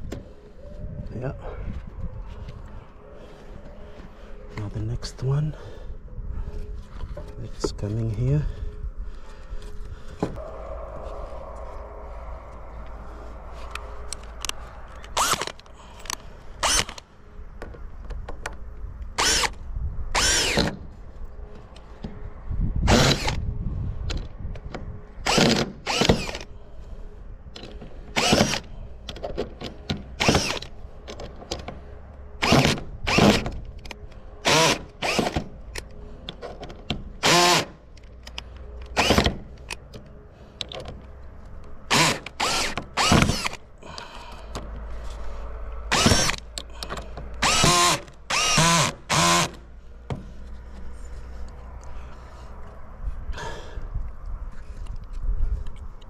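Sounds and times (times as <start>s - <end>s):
cordless drill driving screws: 19.2s - 19.6s, 20.2s - 20.7s, 25.3s - 26.4s, 28.2s - 28.6s, 34.4s - 35.4s, 37.2s - 37.7s, 41.9s - 43.6s, 45.9s - 46.4s, 47.4s - 49.6s.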